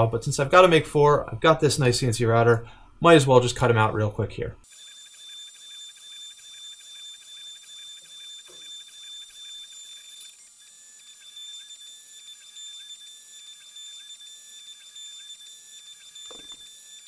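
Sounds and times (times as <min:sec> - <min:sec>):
high-pitched router whine: 0:04.6 - 0:17.0.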